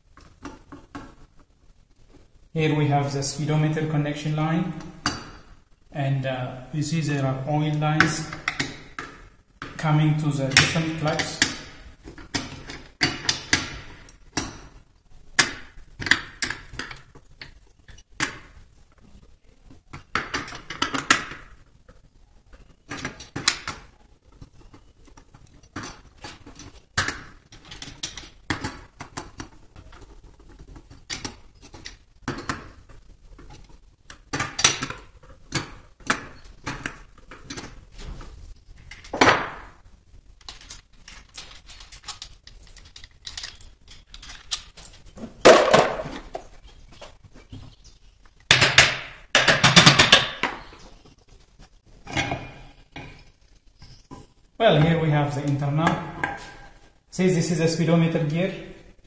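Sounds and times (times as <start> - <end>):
metal tools and bolts clinking: 40.5 - 46.3.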